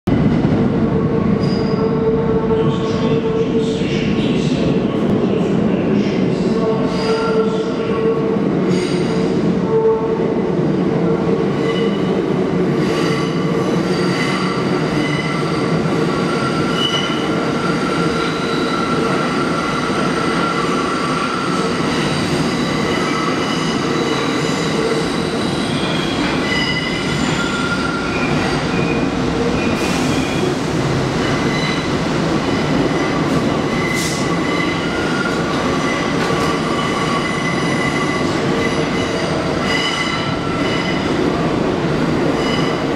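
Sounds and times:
train wheels rumbling on rail: 0:00.1 - 0:42.9
high wheel squeal: 0:25.2 - 0:29.0.

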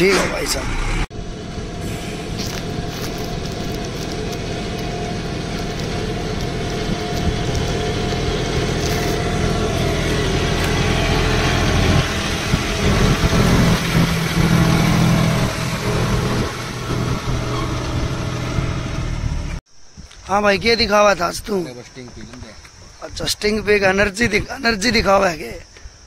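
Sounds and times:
tractor diesel engine running: 0:00.0 - 0:19.6.

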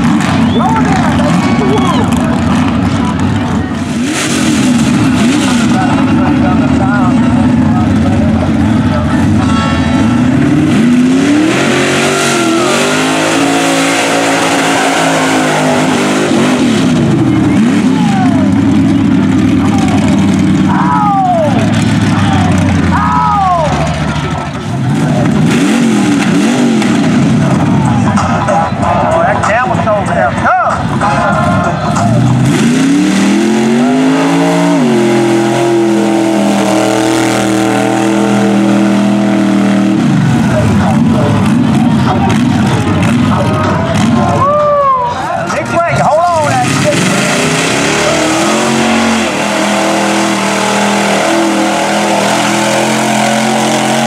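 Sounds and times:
truck engine revving hard: 0:00.0 - 0:54.0
tires spinning in mud: 0:10.0 - 0:29.4, 0:31.3 - 0:54.0.

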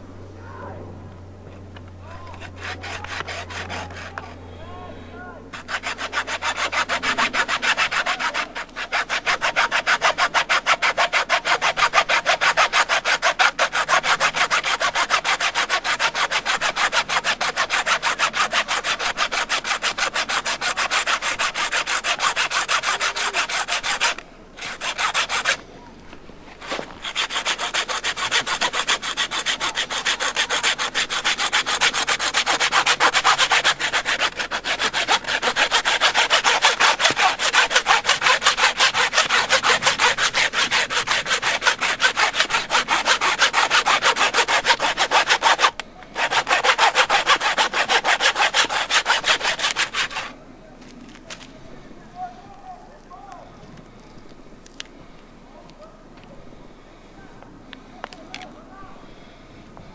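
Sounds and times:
hacksaw cutting through bone: 0:02.4 - 0:04.3, 0:05.6 - 0:25.6, 0:26.6 - 0:50.3.

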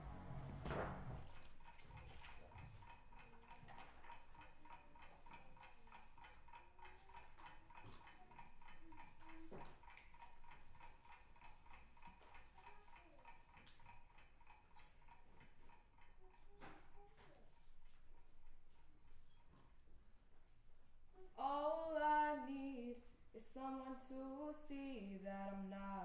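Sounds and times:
faint fast ticking: 0:01.2 - 0:19.5.

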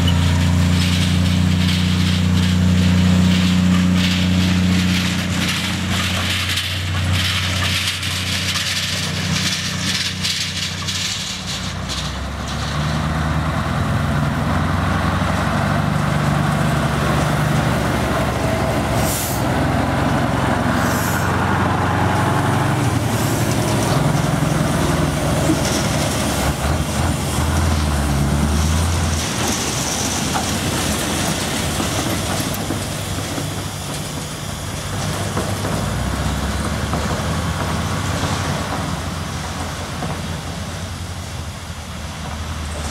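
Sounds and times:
diesel truck engine running: 0:00.0 - 0:42.9
short high hisses: 0:20.8 - 0:21.4.

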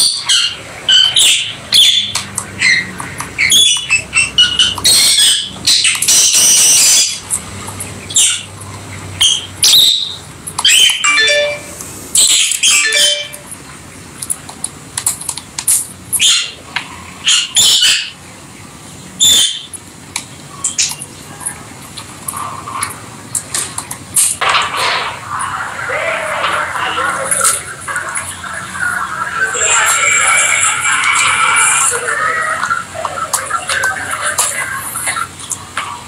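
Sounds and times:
lovebirds chirping: 0:25.4 - 0:36.0.

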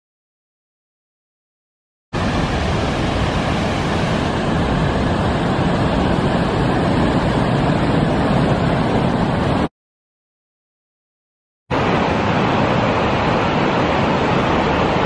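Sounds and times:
rushing whitewater: 0:02.2 - 0:09.7, 0:11.7 - 0:15.0.

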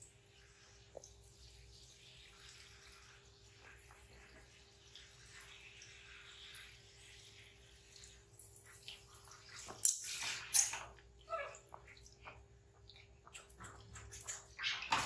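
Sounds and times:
water trickling and dripping: 0:00.0 - 0:15.0
water splashes: 0:02.0 - 0:15.0.

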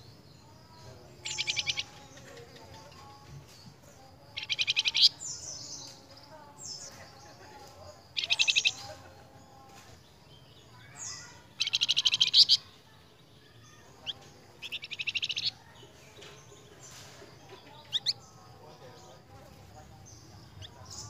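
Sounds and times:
songbird trilling: 0:00.0 - 0:03.2, 0:04.0 - 0:07.3, 0:08.0 - 0:12.8, 0:13.5 - 0:18.6.

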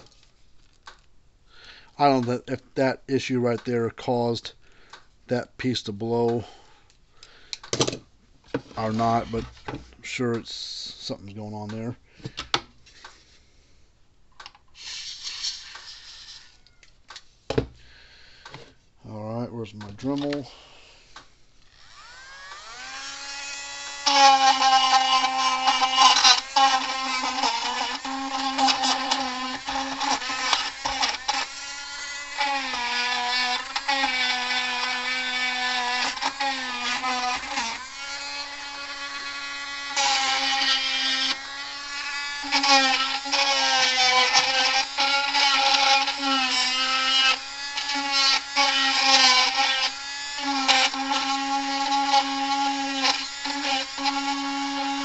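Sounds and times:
rotary tool high whine: 0:14.8 - 0:16.9, 0:21.6 - 0:55.0.

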